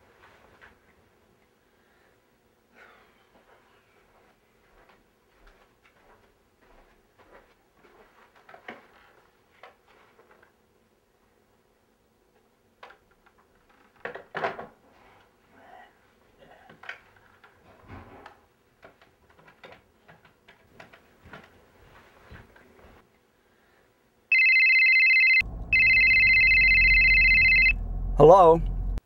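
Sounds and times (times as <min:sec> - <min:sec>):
electronic phone ringing: 0:24.3 - 0:27.8
low car road noise: 0:25.4 - 0:29.0.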